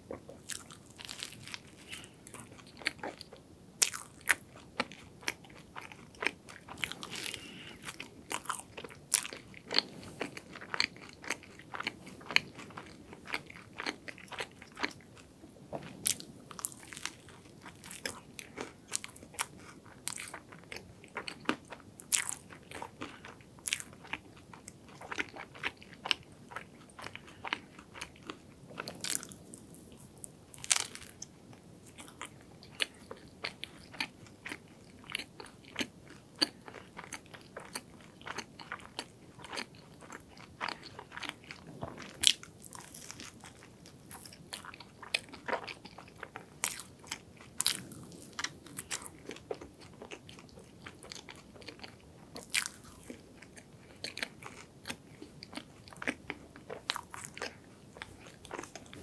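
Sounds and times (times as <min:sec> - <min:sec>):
chewing: 0:00.1 - 0:59.0
crunching pastry bites: 0:32.0 - 0:59.0.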